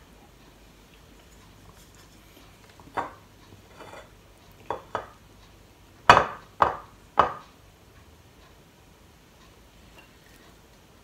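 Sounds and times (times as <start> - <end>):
wooden paddle knocking on steel pot: 6.1 - 7.4.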